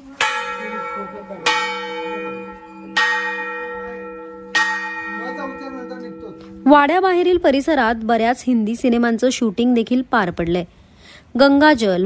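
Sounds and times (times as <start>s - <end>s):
large bell ringing: 0.0s - 7.1s.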